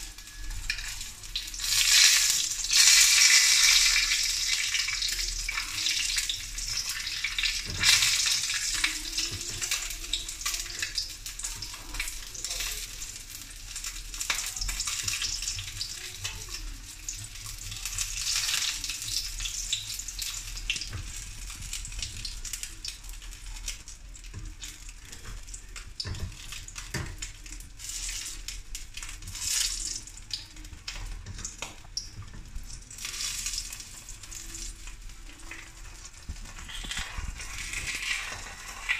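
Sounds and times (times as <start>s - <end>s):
fish sizzling in hot oil: 0.0s - 38.9s.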